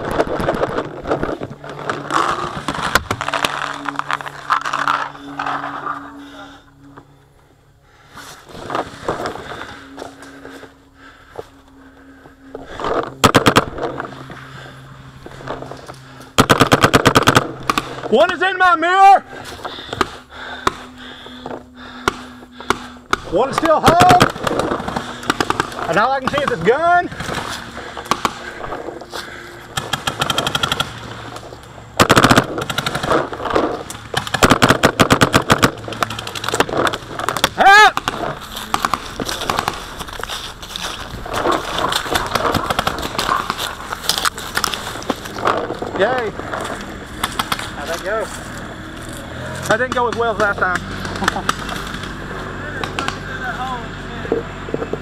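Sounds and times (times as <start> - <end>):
paintball marker rapid shots: 13.2 - 13.9, 16.4 - 18.1, 22.0 - 28.6, 29.7 - 31.1, 32.0 - 39.9, 41.3 - 43.8, 47.2 - 47.9.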